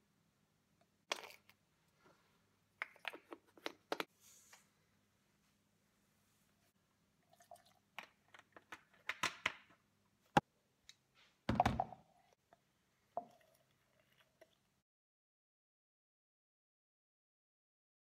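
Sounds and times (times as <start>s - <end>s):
plastic caps and containers clicking: 2.8s - 4.1s, 8.0s - 9.8s.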